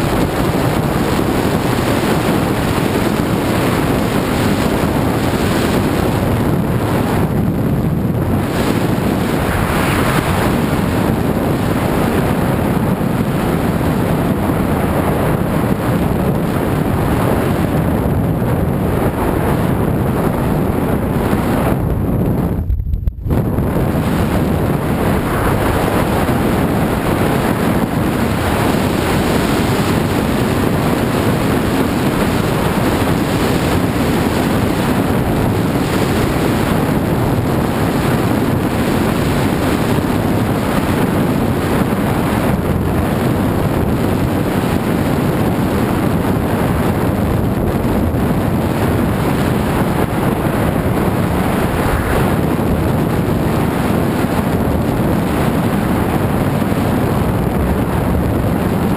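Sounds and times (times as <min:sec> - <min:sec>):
wind buffeting microphone: 0:00.0 - 0:58.9.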